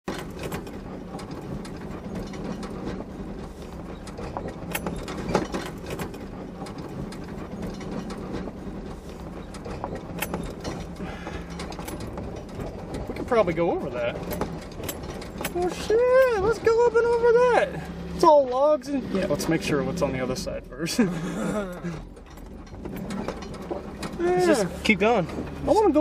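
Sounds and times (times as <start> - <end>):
interior rattling and knocking: 0.0 - 26.0
engine low drone: 0.1 - 26.0.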